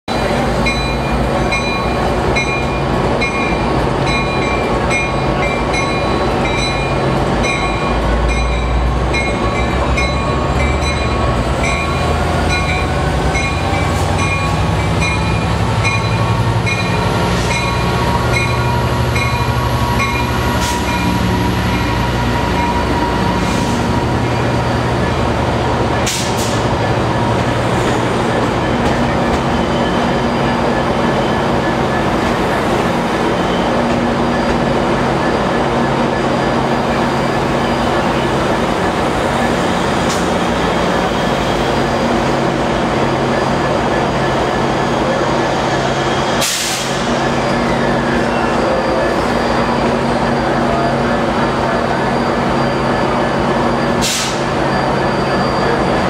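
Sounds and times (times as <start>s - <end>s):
diesel locomotive engine running: 0.1s - 56.0s
locomotive bell ringing: 0.3s - 23.4s.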